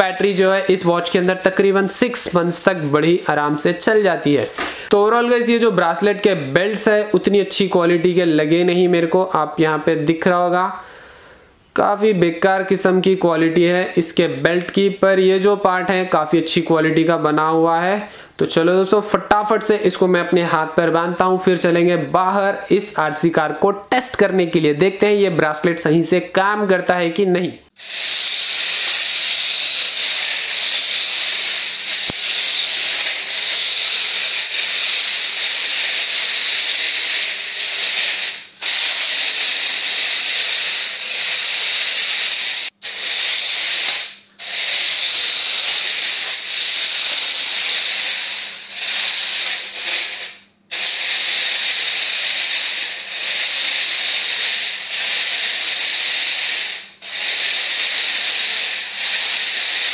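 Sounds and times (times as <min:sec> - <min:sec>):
electric motors whirring: 0:27.8 - 0:59.9.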